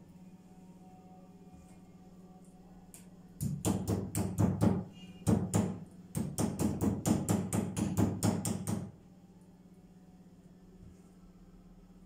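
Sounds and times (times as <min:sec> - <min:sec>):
mallet pounding meat on board: 0:03.4 - 0:08.9.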